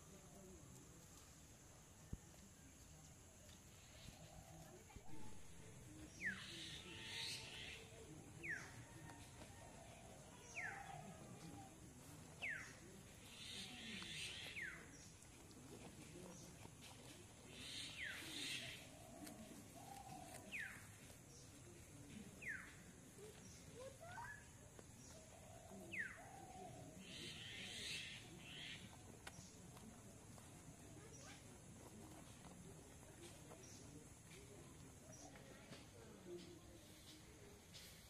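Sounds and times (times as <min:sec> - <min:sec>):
leaves rustling: 0:10.5 - 0:22.4.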